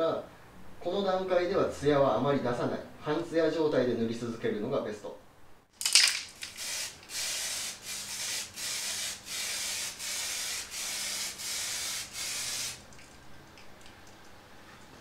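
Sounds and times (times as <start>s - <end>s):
aerosol spray can hissing: 6.3s - 12.8s.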